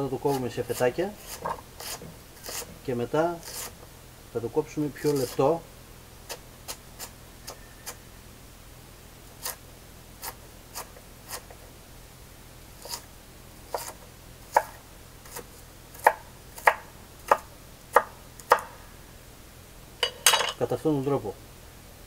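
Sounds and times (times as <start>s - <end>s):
knife chopping on wooden board: 0.3s - 2.8s, 13.7s - 18.7s.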